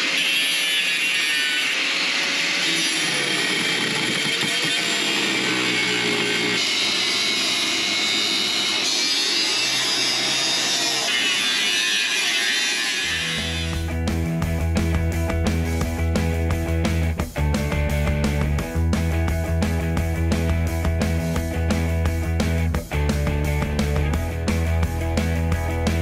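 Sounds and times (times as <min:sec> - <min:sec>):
angle grinder cutting steel: 0:00.0 - 0:14.0.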